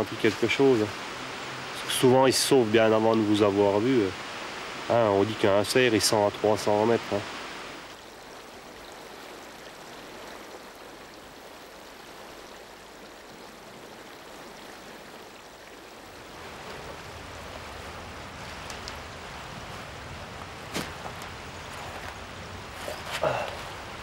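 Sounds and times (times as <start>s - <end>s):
steady outdoor rushing noise: 0.0s - 7.9s.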